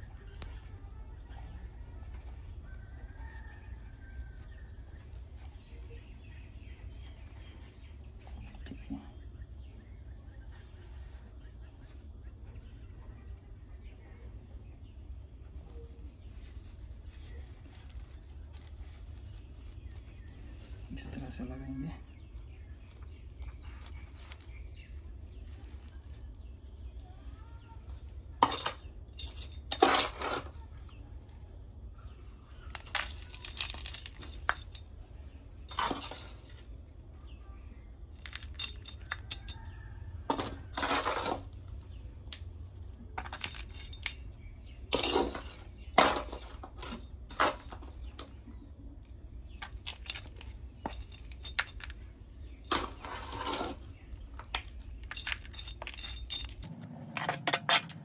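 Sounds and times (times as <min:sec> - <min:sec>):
trowel scraping soil: 0:27.9 - 0:31.0, 0:40.3 - 0:41.6, 0:52.6 - 0:54.7.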